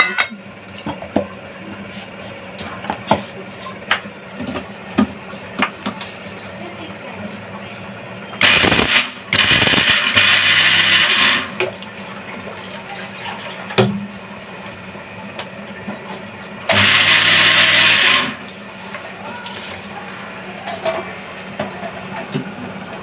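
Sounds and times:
mixer grinder grinding nuts: 8.4 - 11.6, 16.7 - 18.6.

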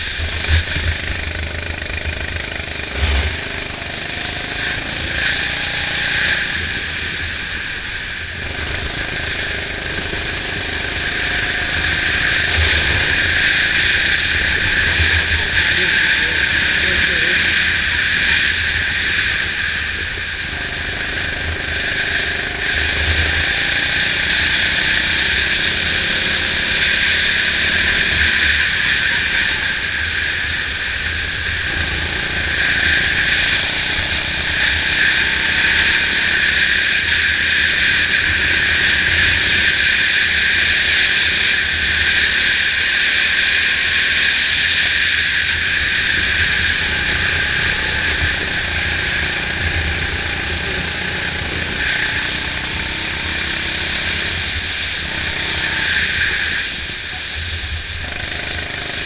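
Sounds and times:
go-kart engine running: 0.0 - 59.0.

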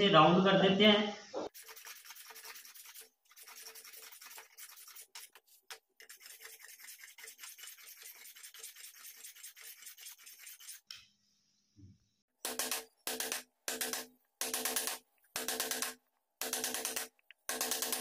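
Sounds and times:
hand tool scraping wood: 1.5 - 10.8.

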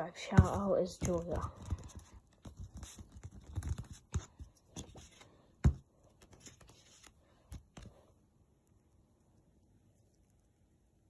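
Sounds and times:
hands tapping and rubbing slime: 0.3 - 4.4.

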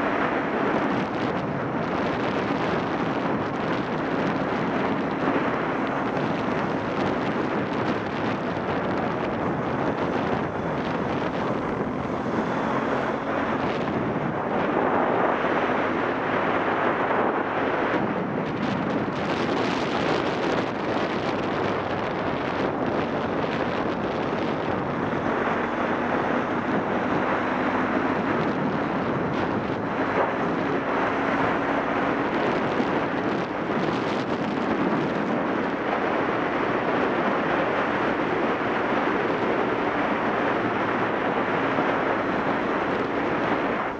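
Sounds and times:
wind rushing over microphone: 0.0 - 43.9
motorcycle engine running: 1.7 - 14.8.

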